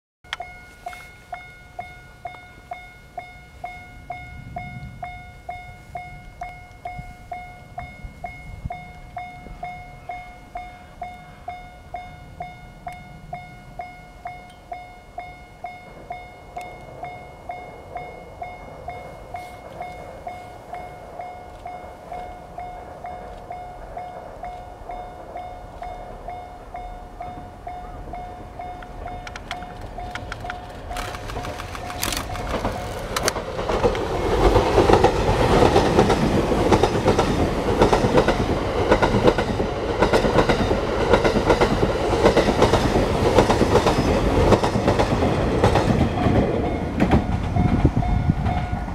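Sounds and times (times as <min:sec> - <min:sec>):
level crossing bell ringing: 0:00.3 - 0:23.8
approaching train rumble: 0:00.3 - 0:48.9.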